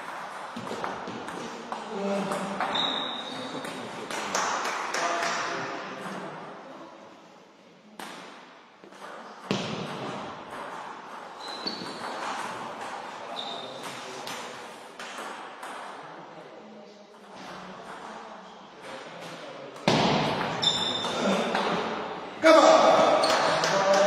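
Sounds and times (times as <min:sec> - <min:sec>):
brief high squeaks: 0:02.7 - 0:03.5, 0:20.6 - 0:21.1.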